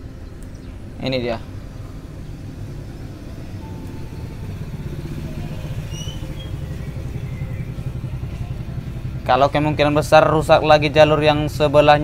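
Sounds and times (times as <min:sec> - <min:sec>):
motorcycle engine rumbling: 0:00.0 - 0:12.0
faint high chirps: 0:03.5 - 0:09.0.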